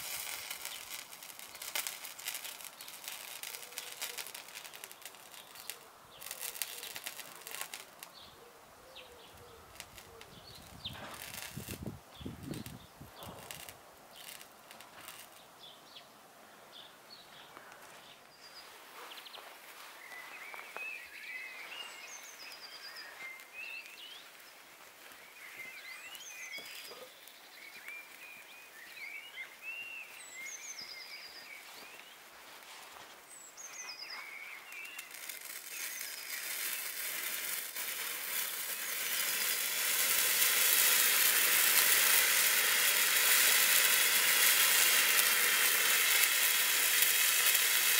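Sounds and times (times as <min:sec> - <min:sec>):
pyrotechnic mixture hissing: 0:00.0 - 0:08.2, 0:09.2 - 0:15.4, 0:21.1 - 0:29.8, 0:33.3 - 0:47.9
birds chirping: 0:15.3 - 0:32.3, 0:33.2 - 0:47.0.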